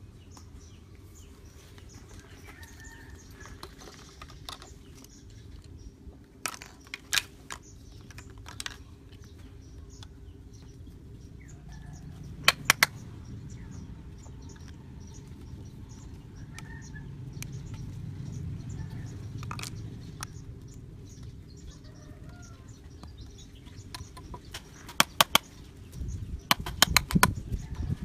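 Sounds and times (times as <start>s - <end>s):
plastic pipe clicks and clacks: 12.4s - 13.0s, 26.5s - 27.4s.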